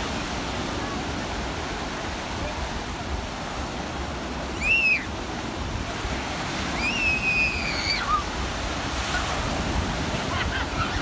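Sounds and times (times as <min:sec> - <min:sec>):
sea surf breaking on shore: 0:00.0 - 0:11.0
wind rumbling on microphone: 0:05.2 - 0:11.0.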